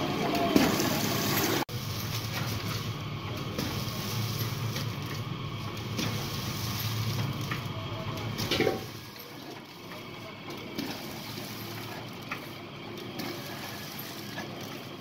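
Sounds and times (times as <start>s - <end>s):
packing machine motor hum: 0.0s - 15.0s
machine mechanism clacks: 0.3s - 15.0s
machine clunk: 5.9s - 12.5s.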